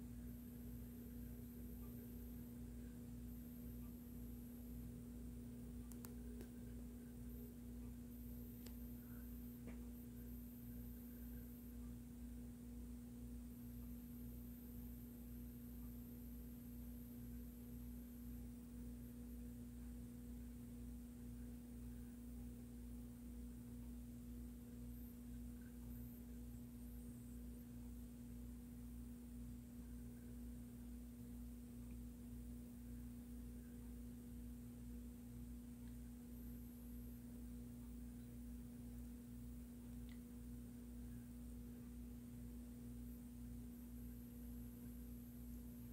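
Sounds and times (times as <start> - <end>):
faint steady hum: 0.0 - 45.9.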